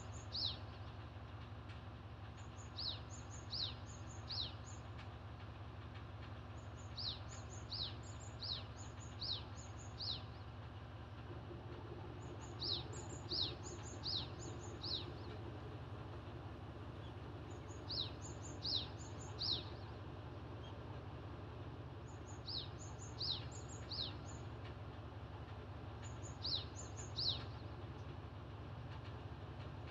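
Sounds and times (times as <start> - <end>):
songbird singing: 0.0 - 0.9, 2.4 - 5.0, 6.5 - 10.7, 11.7 - 16.2, 16.8 - 28.2.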